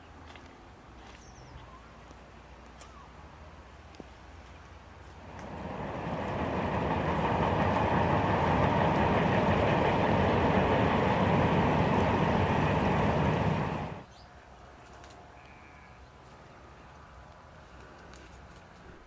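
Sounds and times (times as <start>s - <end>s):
freight train rumbling past: 5.2s - 14.0s.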